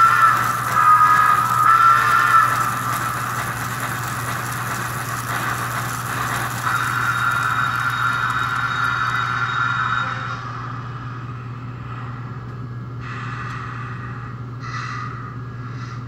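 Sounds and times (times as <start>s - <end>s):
steam engine running sound: 0.0s - 12.2s
low hum: 0.0s - 16.0s.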